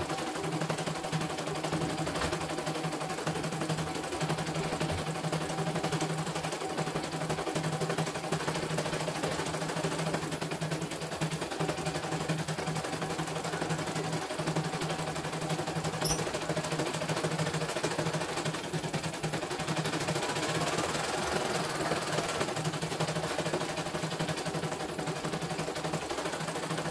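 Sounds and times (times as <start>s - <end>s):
motor hum: 15.9s - 16.5s.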